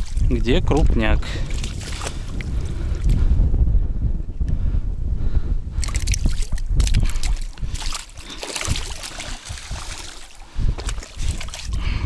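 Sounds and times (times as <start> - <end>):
wind rumble on microphone: 0.0 - 12.0
fish splashing into water: 5.8 - 11.7.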